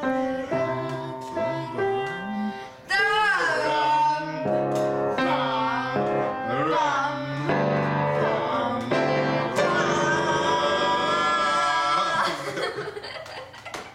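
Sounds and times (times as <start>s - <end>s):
piano chords: 0.0s - 12.6s
person singing: 0.0s - 12.9s
person laughing: 12.0s - 13.9s.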